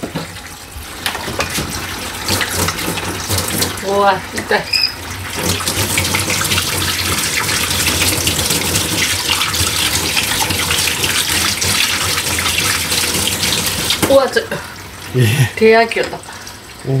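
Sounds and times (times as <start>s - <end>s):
tap running into sink: 0.0s - 3.8s.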